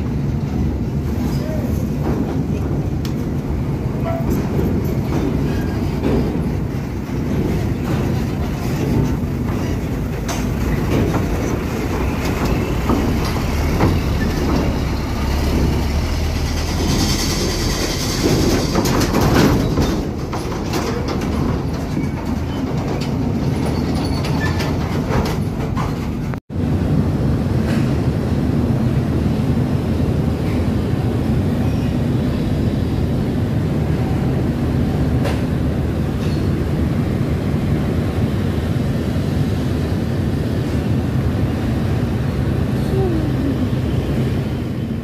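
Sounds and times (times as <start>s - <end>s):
heavy truck rumbling: 0.0s - 45.0s
clanking and rattling: 0.4s - 26.4s.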